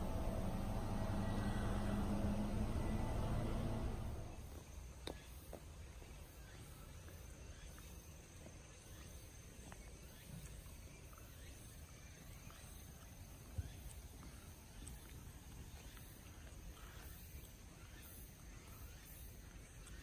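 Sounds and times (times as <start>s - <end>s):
faint steady high tone: 0.0s - 4.4s
low rumble: 0.0s - 4.7s.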